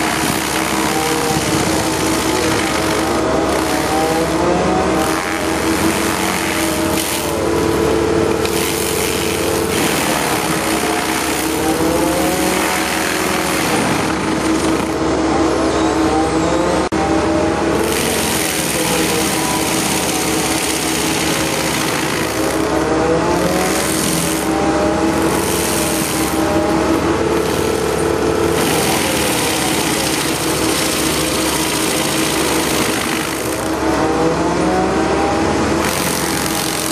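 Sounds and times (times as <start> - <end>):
stump cutter grinding wood: 0.0 - 36.9.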